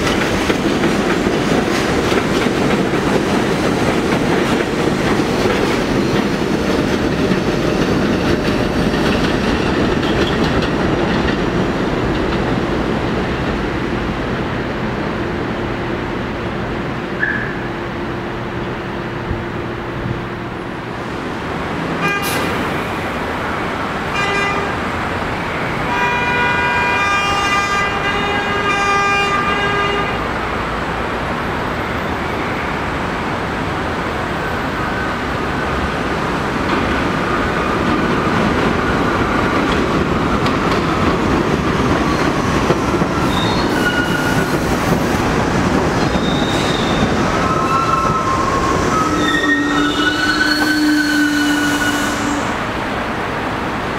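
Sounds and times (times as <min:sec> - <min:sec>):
train wheels rumbling on track: 0:00.0 - 0:53.9
train horn blasts: 0:22.0 - 0:22.5, 0:24.1 - 0:24.8, 0:25.8 - 0:30.3, 0:48.9 - 0:52.7
squealing wheels: 0:42.0 - 0:44.8, 0:46.0 - 0:52.5.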